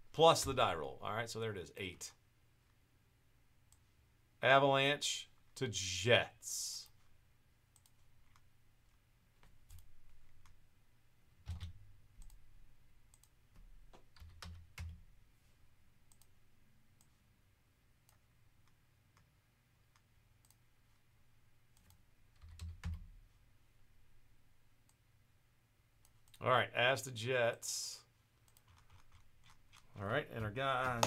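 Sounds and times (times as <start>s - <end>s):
computer mouse clicks: 7.7s - 8.5s, 11.5s - 12.4s, 13.1s - 13.4s, 16.1s - 16.3s, 19.9s - 20.6s, 28.4s - 30.0s
keystrokes: 9.5s - 10.6s, 11.4s - 12.4s, 14.0s - 15.0s, 21.8s - 23.1s, 28.5s - 29.9s.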